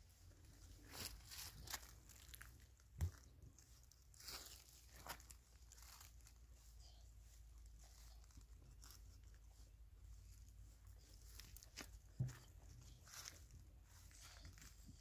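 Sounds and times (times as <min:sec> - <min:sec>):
dry leaves rustling and crunching: 0:00.4 - 0:06.4, 0:07.9 - 0:09.4, 0:11.0 - 0:15.0.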